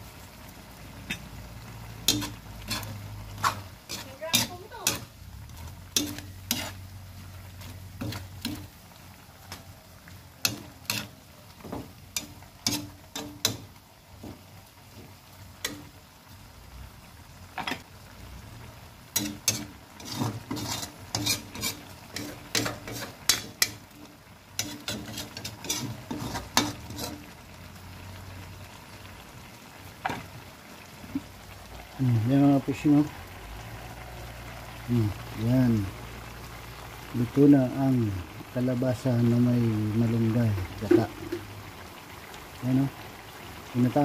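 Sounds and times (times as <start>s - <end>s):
metal spoon clinking in pan: 2.1s - 5.1s, 6.0s - 6.7s.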